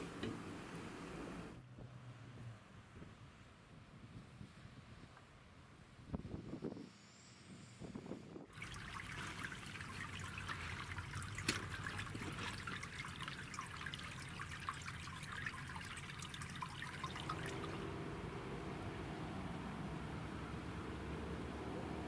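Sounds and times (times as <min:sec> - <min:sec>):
meltwater trickling and dripping: 0:08.5 - 0:18.0.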